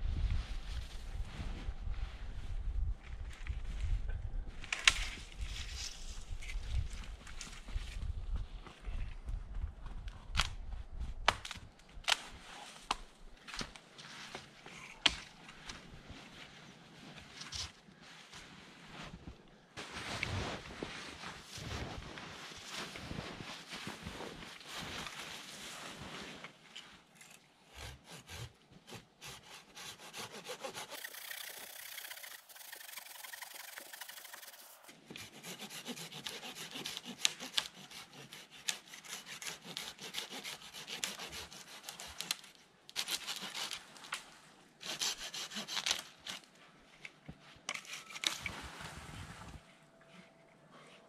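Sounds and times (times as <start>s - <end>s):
hand saw cutting wood: 27.7s - 43.8s, 44.8s - 46.4s.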